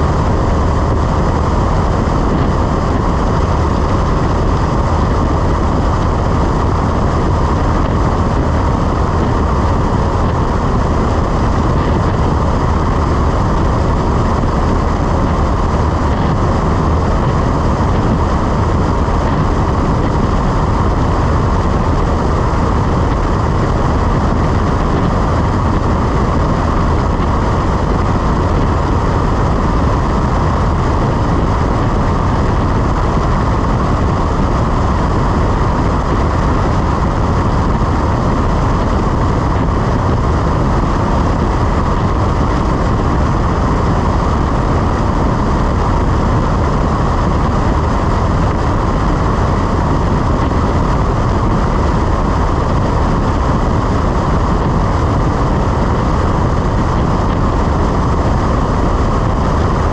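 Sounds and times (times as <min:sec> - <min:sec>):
airplane engine and propeller: 0:00.0 - 0:59.9
rushing air: 0:00.0 - 0:59.9.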